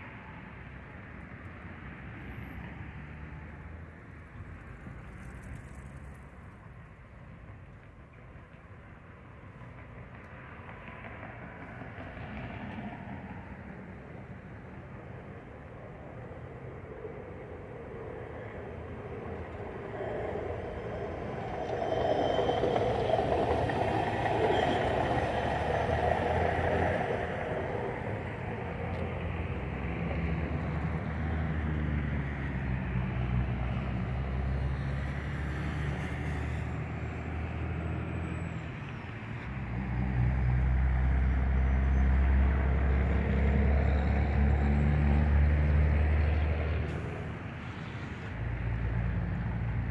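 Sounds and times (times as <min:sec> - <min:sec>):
truck running on railway track: 0:00.0 - 0:49.9
deep engine rumble: 0:14.6 - 0:31.2.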